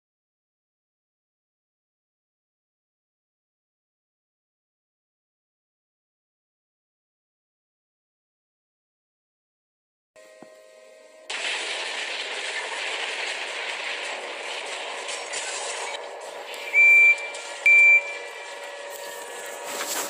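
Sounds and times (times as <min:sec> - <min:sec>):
short high beeps: 0:16.7 - 0:18.4.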